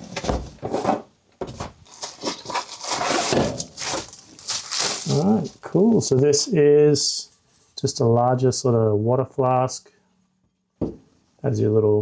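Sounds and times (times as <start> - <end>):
cardboard box scraping and sliding: 1.8 - 4.2
soft thump: 10.8 - 11.0.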